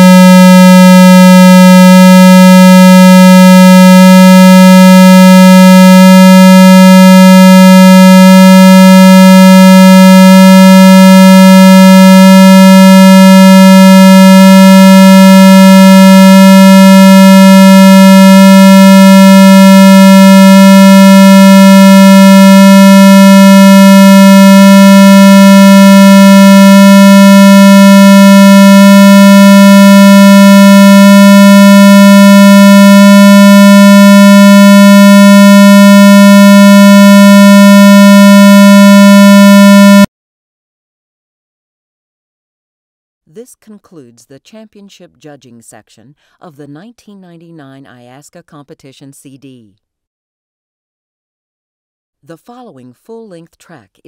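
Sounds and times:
low buzzy electronic test tone: 0:00.0 - 0:40.1.

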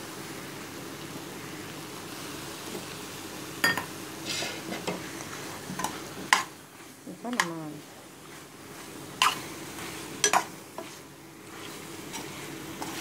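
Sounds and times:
food sizzling in a pot: 0:00.0 - 0:13.0
scraping in a pot: 0:04.2 - 0:06.5, 0:08.2 - 0:13.0.

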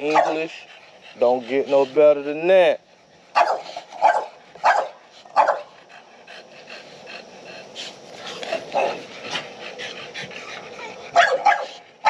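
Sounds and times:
dog barking: 0:00.0 - 0:00.5, 0:03.3 - 0:05.7, 0:11.1 - 0:11.8.

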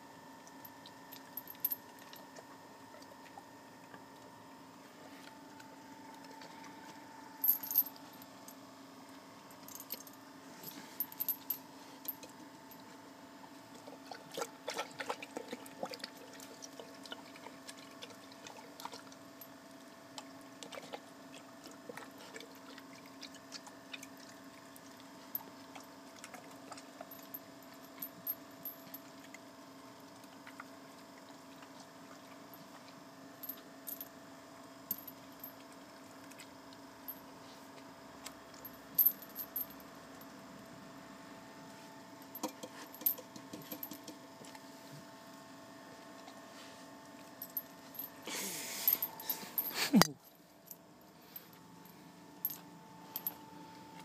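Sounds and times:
faint steady hum: 0:00.0 - 0:54.0
metal chain clinking: 0:01.4 - 0:02.2, 0:07.4 - 0:08.2, 0:09.6 - 0:11.6, 0:38.6 - 0:39.8, 0:42.3 - 0:44.1
dog lapping from metal pot: 0:13.8 - 0:19.2.

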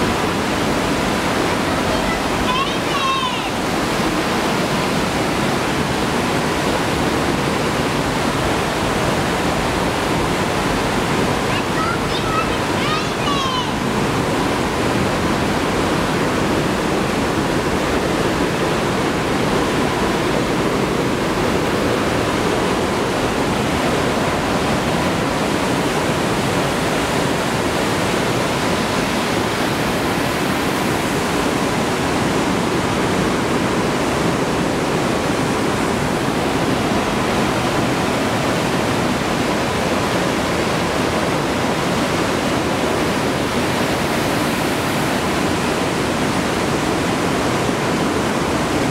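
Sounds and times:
stream whitewater rushing: 0:00.0 - 0:48.9.

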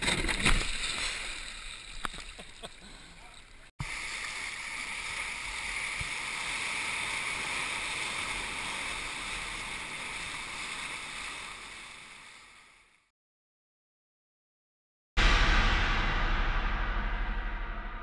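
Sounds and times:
surf rushing around kayak: 0:00.5 - 0:12.8.

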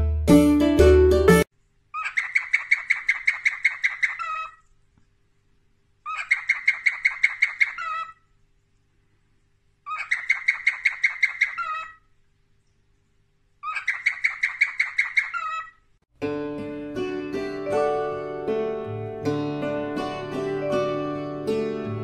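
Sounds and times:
cockatiel chirping: 0:02.0 - 0:04.6, 0:06.1 - 0:08.2, 0:09.9 - 0:12.0, 0:13.6 - 0:15.7.

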